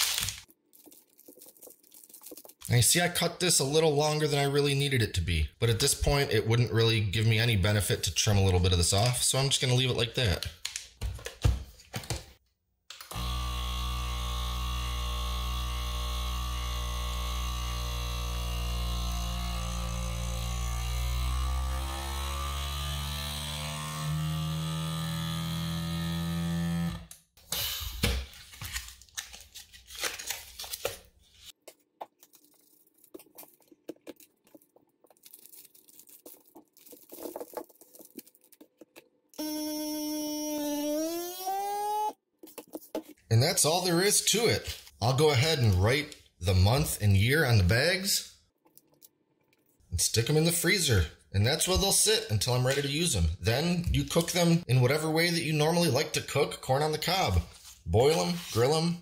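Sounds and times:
handling sounds: 0.0s - 2.8s, 28.3s - 39.3s
vacuum sealer pump running: 13.1s - 27.1s.

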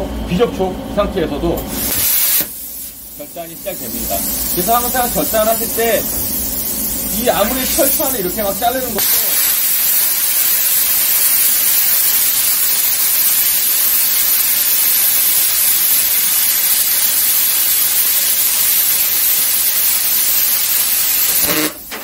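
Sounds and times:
plasma cutter hissing: 1.6s - 22.0s.

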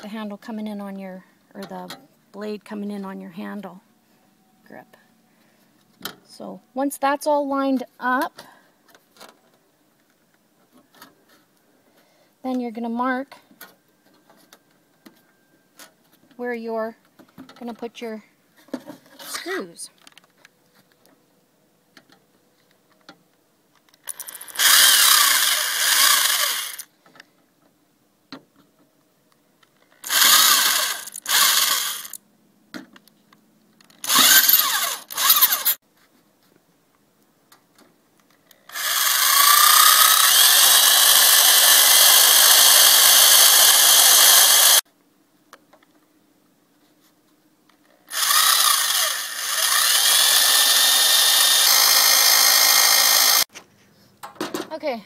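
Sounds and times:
electric drill boring plywood: 24.1s - 26.9s, 30.0s - 32.2s, 34.0s - 35.8s, 38.7s - 44.8s, 48.1s - 53.5s.

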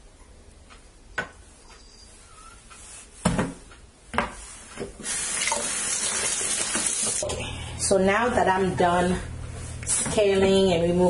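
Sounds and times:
water running into sink: 5.0s - 7.3s.

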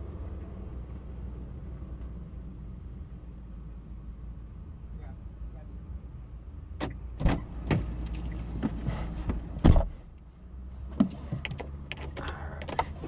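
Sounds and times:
car door clicks and knocks: 8.6s - 10.0s
heavy thump: 8.6s - 10.0s.

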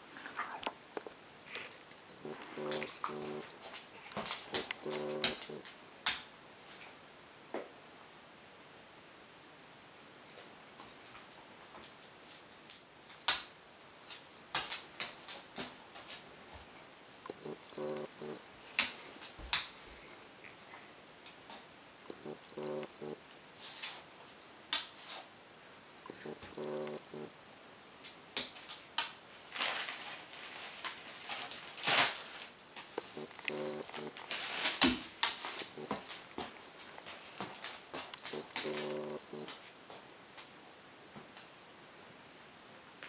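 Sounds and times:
short low hum: 2.1s - 3.5s, 17.3s - 18.4s, 22.1s - 23.2s
paper ripping and rustling: 29.5s - 33.3s, 33.9s - 36.1s.

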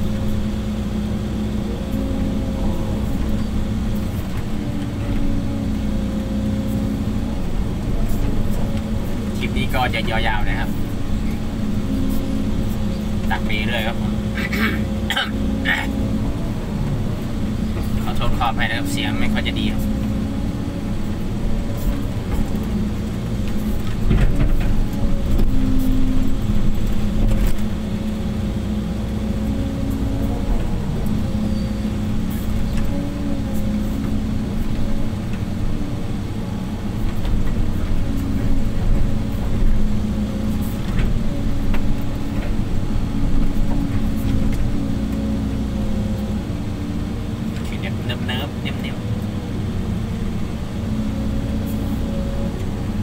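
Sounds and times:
excavator diesel engine: 0.0s - 53.0s
knocks and clatters: 21.9s - 27.8s.

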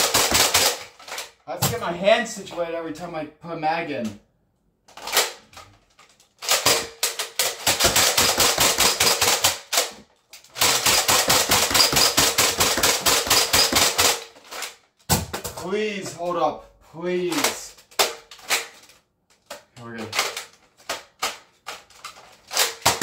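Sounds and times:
toy blaster pumping and firing: 7.4s - 9.9s, 10.5s - 14.2s.

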